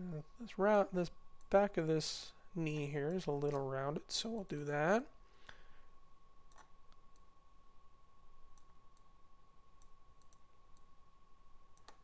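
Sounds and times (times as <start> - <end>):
computer mouse clicks: 6.5 - 7.3, 9.8 - 10.9, 11.8 - 12.0.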